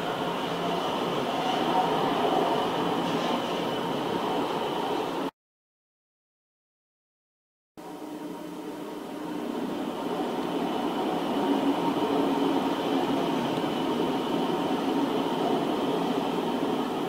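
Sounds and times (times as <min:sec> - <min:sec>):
train wheels rumbling on track: 0:00.0 - 0:05.3, 0:08.7 - 0:17.0
faint high whine: 0:07.8 - 0:17.0.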